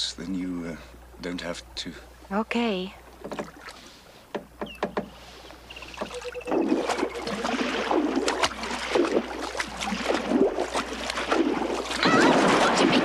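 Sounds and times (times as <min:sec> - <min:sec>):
person wading through river water: 0:03.0 - 0:04.3, 0:05.1 - 0:13.0
light knocks: 0:04.3 - 0:05.2.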